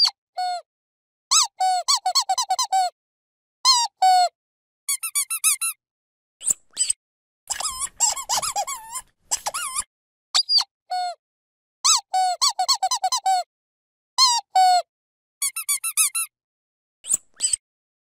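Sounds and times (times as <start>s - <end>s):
dog squeaky toy squeaking: 1.3s - 2.9s, 4.9s - 5.8s, 6.8s - 10.7s, 11.9s - 13.4s, 15.4s - 16.3s.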